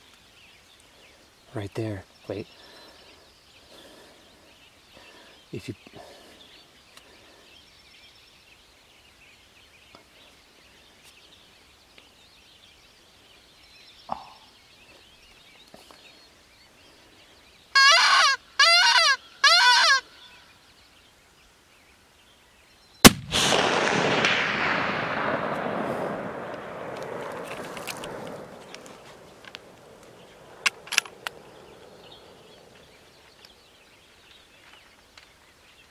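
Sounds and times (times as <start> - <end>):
short wavering calls: 17.7 - 20.6
rifle shot echoing: 23.0 - 32.7.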